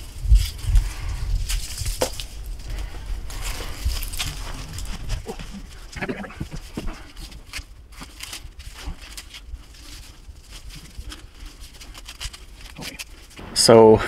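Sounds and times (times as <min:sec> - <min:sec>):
mesh net rustling: 0:00.0 - 0:13.4
velcro strip crackling: 0:00.0 - 0:13.4.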